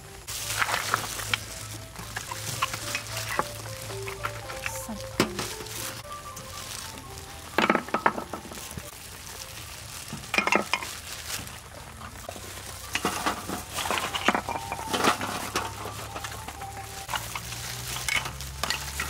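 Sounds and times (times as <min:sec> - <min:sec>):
utensil clattering in cooking pot: 0:10.2 - 0:11.0.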